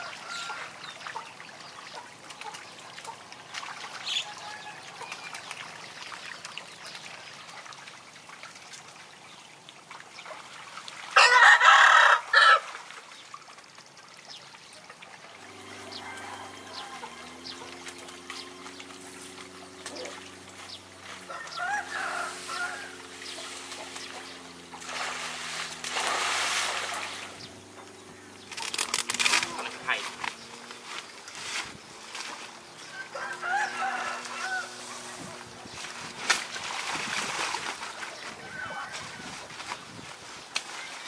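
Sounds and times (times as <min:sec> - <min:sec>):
rooster crowing: 0:00.0 - 0:00.7, 0:04.2 - 0:05.1, 0:11.2 - 0:12.6, 0:15.5 - 0:17.8, 0:21.2 - 0:23.2, 0:32.8 - 0:35.1
steady low hum: 0:15.3 - 0:31.3.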